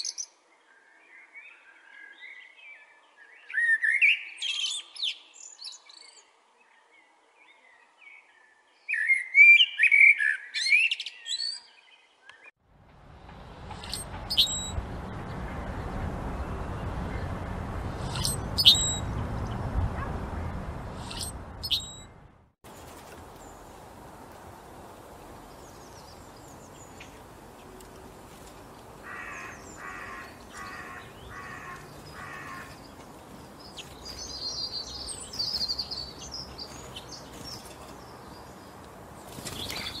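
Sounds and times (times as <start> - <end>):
squeaky high bird calls: 13.8 - 14.8, 18.0 - 19.1, 21.0 - 22.1
starling singing: 18.0 - 20.2.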